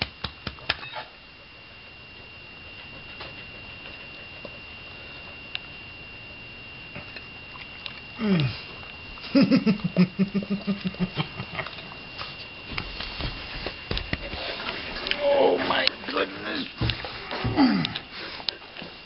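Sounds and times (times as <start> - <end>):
dog groaning: 8.2 - 8.7, 16.6 - 18.7.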